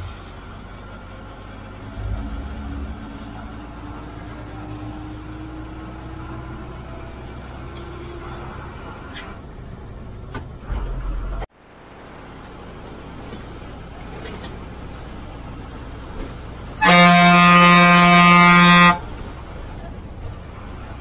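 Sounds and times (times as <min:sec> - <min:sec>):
bus engine running: 0:00.0 - 0:21.0
bus horn blast: 0:16.7 - 0:19.2.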